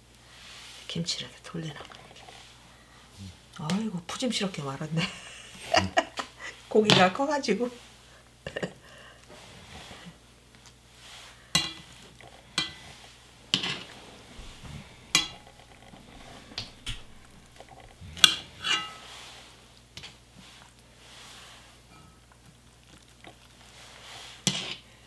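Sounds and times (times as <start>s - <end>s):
metal tongs clinking against pot: 15.1s - 15.6s, 18.2s - 19.0s.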